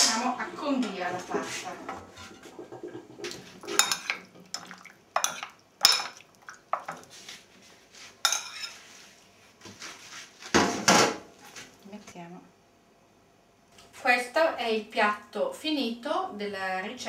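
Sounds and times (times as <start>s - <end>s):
spoon clinking on ceramic bowl: 3.8s - 6.9s, 8.3s - 8.7s.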